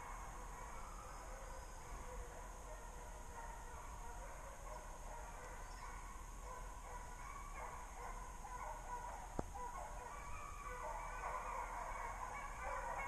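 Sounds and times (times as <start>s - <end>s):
distant hounds baying: 0.0s - 13.0s.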